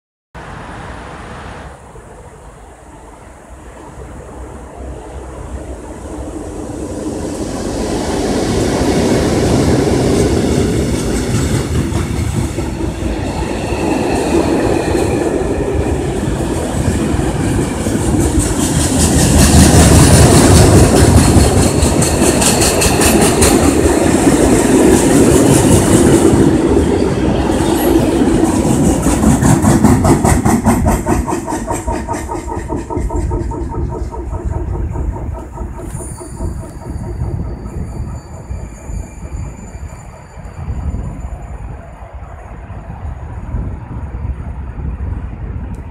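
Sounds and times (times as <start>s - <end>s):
diesel locomotives passing: 0.4s - 45.9s
wheels clacking over rail joints: 7.4s - 41.1s.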